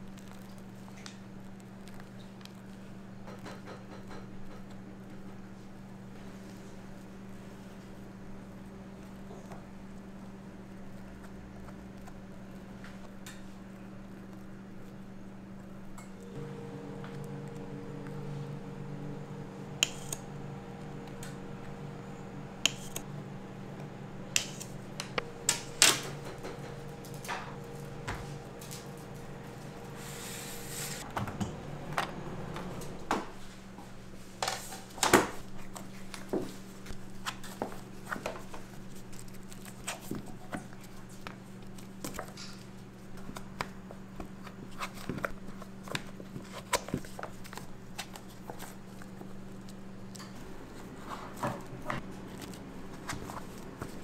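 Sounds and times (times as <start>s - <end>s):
low machine hum: 0.0s - 54.0s
utensils clicking and tapping: 19.6s - 23.1s, 23.8s - 29.9s.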